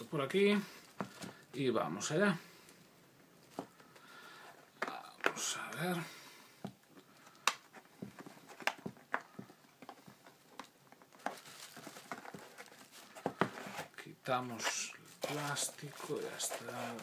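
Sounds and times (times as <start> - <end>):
plastic shrink-wrap crinkling: 10.5 - 13.9, 14.5 - 17.0.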